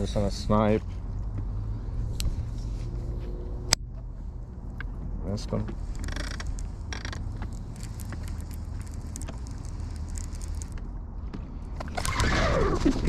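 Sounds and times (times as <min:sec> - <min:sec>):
wind rumbling on microphone: 0:00.0 - 0:13.0
fishing reel cranking: 0:05.8 - 0:10.8
light clicks from reel: 0:05.8 - 0:10.8.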